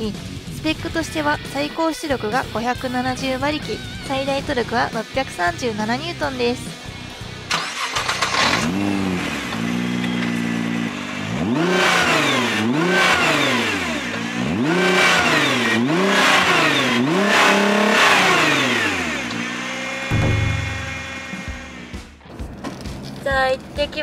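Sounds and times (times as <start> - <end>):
car engine revving: 7.4 - 22.2.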